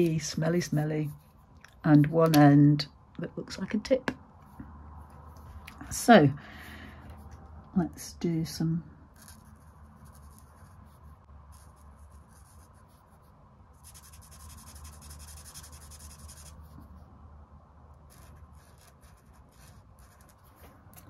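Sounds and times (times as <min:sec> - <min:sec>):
marker scratching on paper: 0:09.2 - 0:16.8, 0:18.1 - 0:21.0.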